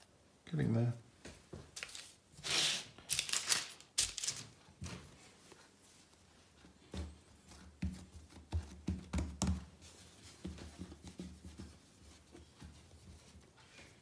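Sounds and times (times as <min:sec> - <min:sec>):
dough thumping and rubbing: 0:06.8 - 0:13.6.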